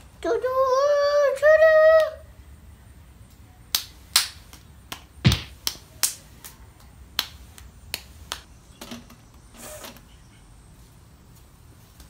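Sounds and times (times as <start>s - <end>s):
hand claps: 3.7s - 8.5s
heavy thump: 5.2s - 5.6s.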